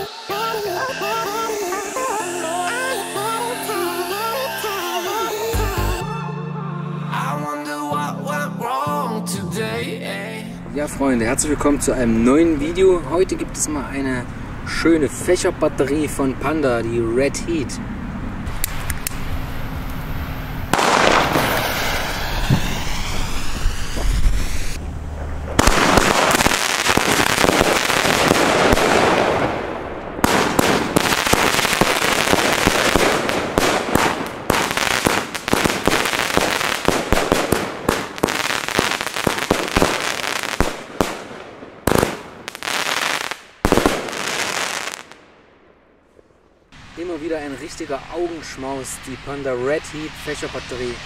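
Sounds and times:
firework shots bursting and crackling: 18.5 - 45.3.

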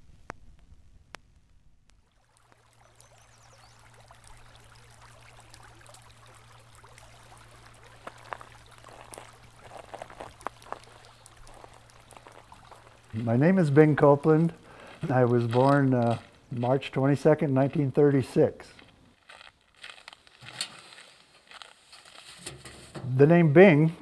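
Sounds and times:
low steady hum: 0.0 - 24.0
creek trickling and gurgling: 2.0 - 18.3.

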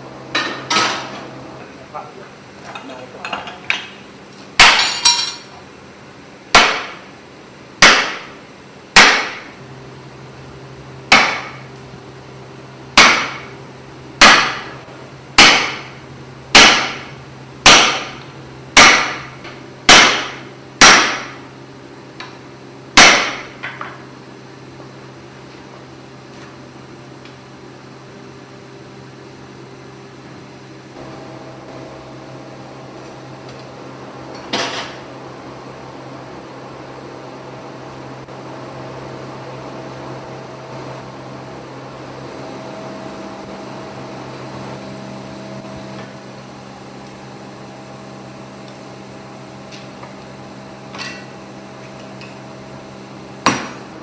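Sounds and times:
hammer striking chisel on anvil: 4.6 - 5.4, 6.5 - 7.0, 7.8 - 8.3, 9.0 - 9.5, 11.1 - 11.7, 13.0 - 13.6, 14.2 - 14.8, 15.4 - 18.2, 18.8 - 21.4, 23.0 - 23.9.

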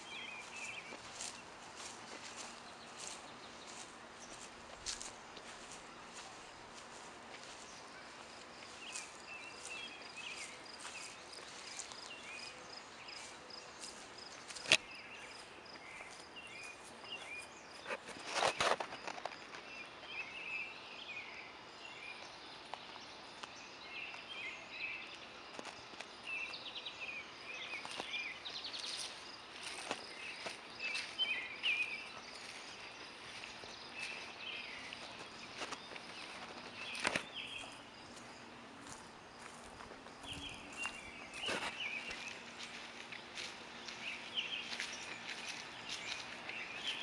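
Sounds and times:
rustle: 0.0 - 20.5
bird chirps: 26.3 - 47.0.

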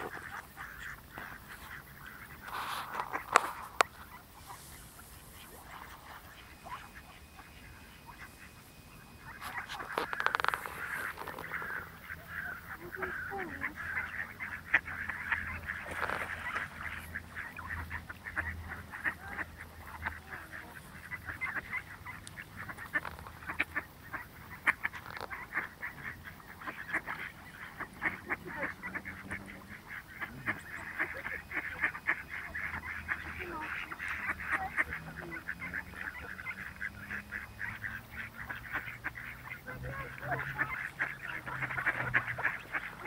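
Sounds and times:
flock of ducks calling: 0.0 - 43.0.

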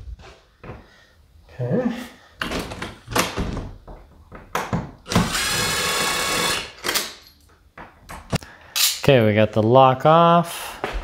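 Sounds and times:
cordless drill-driver running: 5.1 - 6.8.

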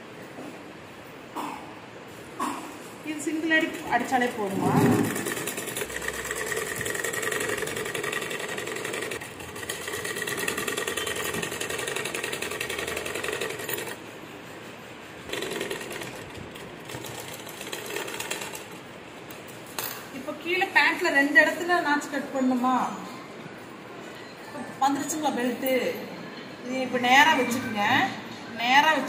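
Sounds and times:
sewing machine stitching: 3.6 - 14.0, 15.3 - 18.8.

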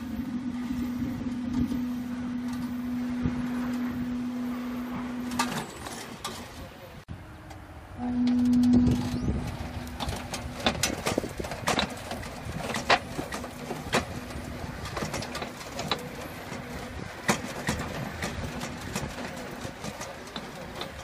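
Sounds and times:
machine knocks and clatters: 9.0 - 21.0.

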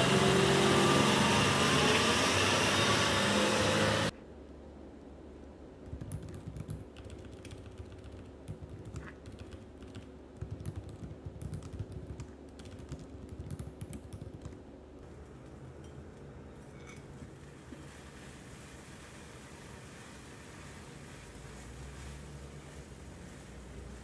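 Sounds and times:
laptop keyboard typing: 5.8 - 14.6.

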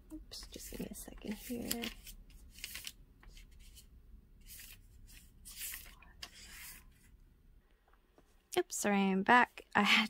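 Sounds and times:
scratchy handling rustles: 0.5 - 7.1.

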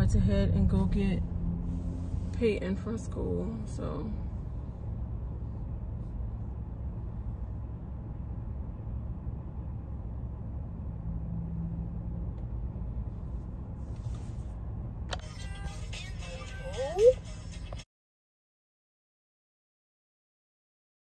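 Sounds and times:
car rumble from inside cabin: 0.0 - 17.8.

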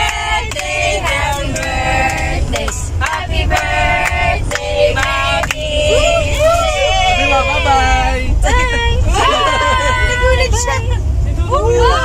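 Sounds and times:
hand claps: 0.0 - 5.6
group of voices singing: 0.0 - 10.4
vehicle rumble: 0.0 - 12.0.

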